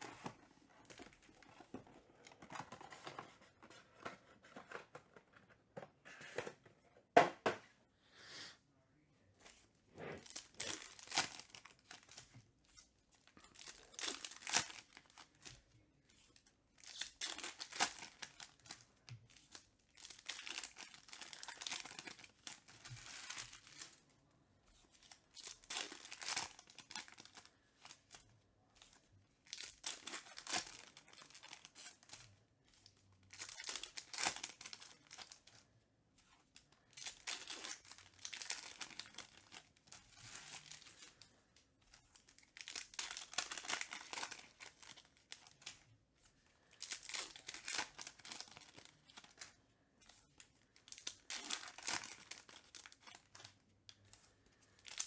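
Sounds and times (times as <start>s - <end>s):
wrappers torn open and crinkled: 10.2s - 12.2s, 13.3s - 15.6s, 16.8s - 18.9s, 19.5s - 24.0s, 25.2s - 28.2s, 29.4s - 32.3s, 32.9s - 35.5s, 36.8s - 41.2s, 42.1s - 45.8s, 46.6s - 49.6s, 50.7s - 53.6s, 54.8s - 55.0s.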